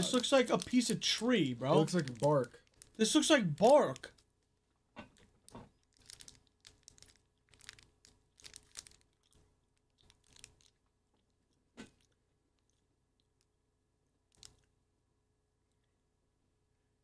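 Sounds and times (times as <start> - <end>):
chocolate bar crunching: 0.0 - 4.2, 5.1 - 11.3, 14.3 - 14.7
plastic wrapper crackling: 0.0 - 4.5, 5.1 - 10.9, 14.3 - 14.7.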